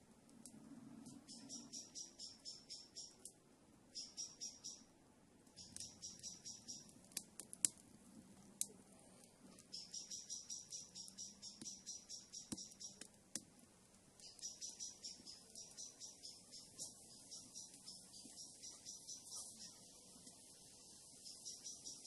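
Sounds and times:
wood fire crackling and popping: 0.2 - 1.4, 5.4 - 20.6
bird chirping: 1.0 - 3.3, 3.9 - 4.9, 5.5 - 7.0, 9.5 - 13.1, 14.2 - 22.0.

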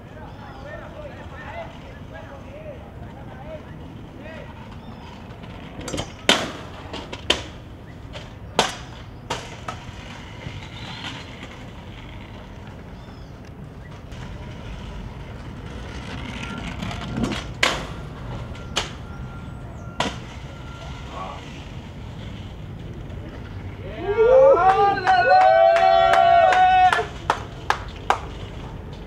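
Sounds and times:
scooter rolling on hard ground: 0.0 - 29.0
scooter deck clacking on ground: 4.5 - 19.0.

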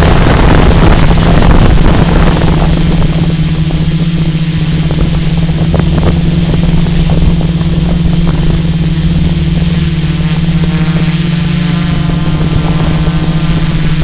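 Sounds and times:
drone propellers whirring: 0.0 - 14.0
steady hiss: 0.0 - 14.0.

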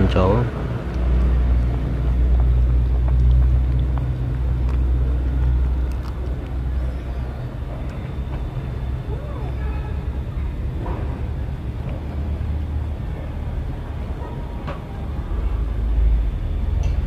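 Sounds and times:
steady low rumble: 0.0 - 17.0
soup boiling: 0.8 - 8.2.

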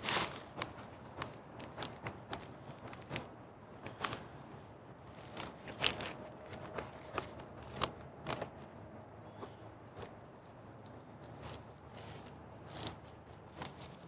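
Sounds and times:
plastic wrapping crinkling: 0.0 - 4.4, 5.0 - 14.0.

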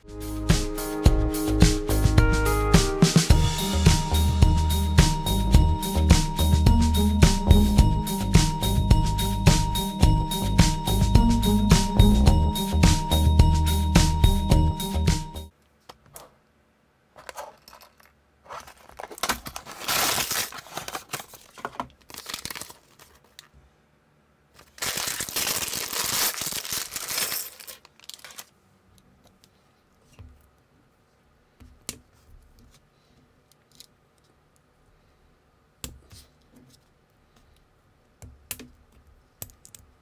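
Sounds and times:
plastic bag rustling: 17.2 - 23.5, 24.6 - 28.6
cardboard box tearing: 18.6 - 21.6.

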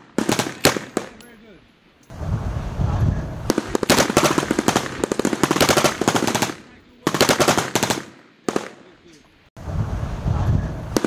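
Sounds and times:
machine gun firing bursts: 0.0 - 1.2, 3.5 - 8.8.

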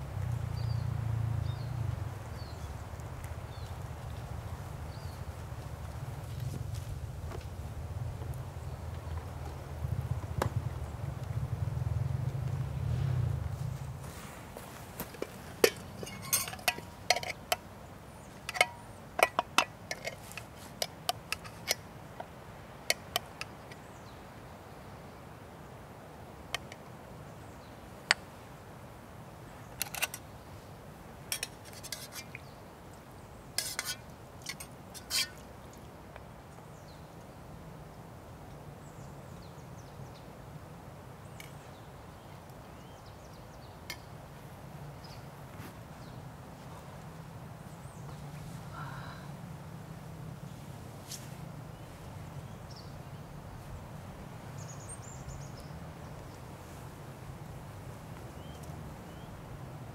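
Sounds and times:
cookware clinking and knocking: 15.6 - 17.3.

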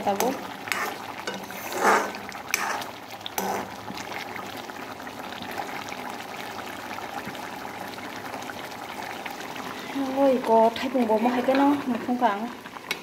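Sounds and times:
curry simmering and bubbling: 0.0 - 13.0
ladle scraping a pan: 0.2 - 3.8.

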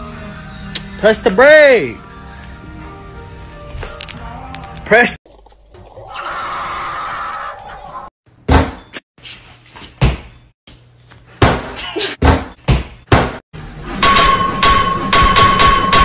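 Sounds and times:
music: 0.0 - 5.2.

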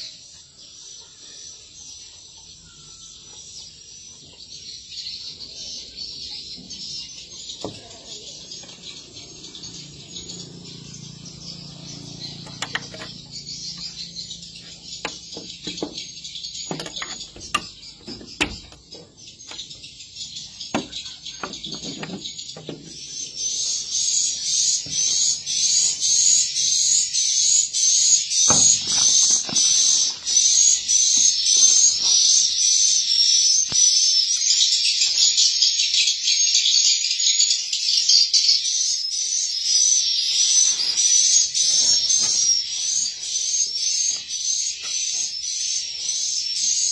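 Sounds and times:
knocks and handling sounds: 15.0 - 19.0.

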